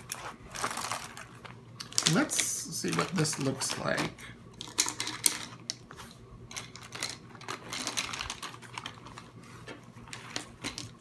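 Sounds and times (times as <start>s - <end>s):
pens and pencils clicking: 1.8s - 4.0s, 6.5s - 9.2s.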